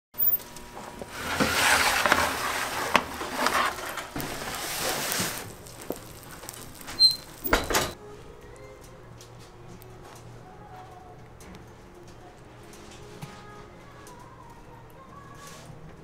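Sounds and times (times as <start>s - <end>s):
metal tray scraping along oven: 0.2s - 8.0s.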